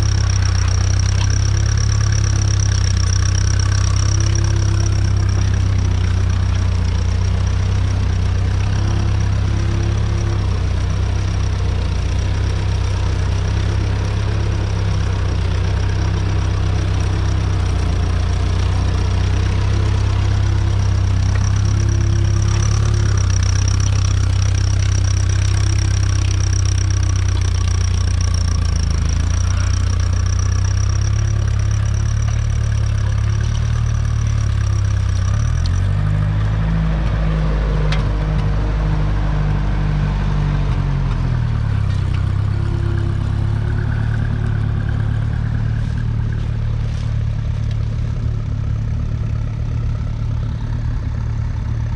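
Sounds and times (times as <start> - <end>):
plough cutting through soil: 0.0 - 36.3
tractor engine under load: 0.0 - 51.9.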